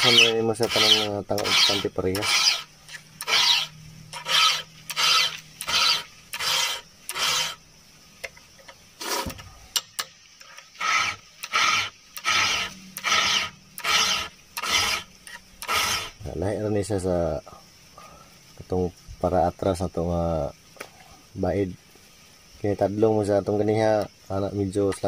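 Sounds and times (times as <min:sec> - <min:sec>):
file rasping on saw chain: 0:00.0 - 0:07.6, 0:10.8 - 0:16.2.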